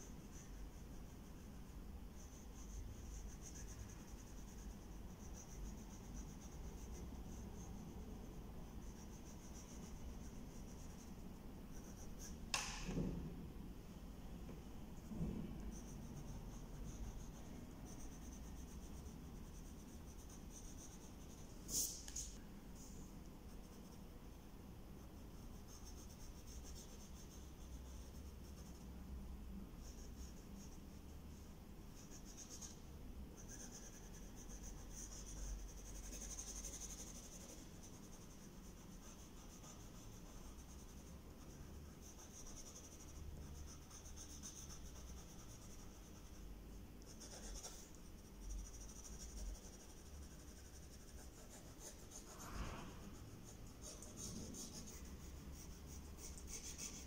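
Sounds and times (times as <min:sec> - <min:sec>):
pencil scratching on paper: 0:00.0 - 0:12.4, 0:32.0 - 0:32.8, 0:33.4 - 0:46.4, 0:47.0 - 0:52.5, 0:53.2 - 0:57.0
sharp click: 0:12.5 - 0:13.0.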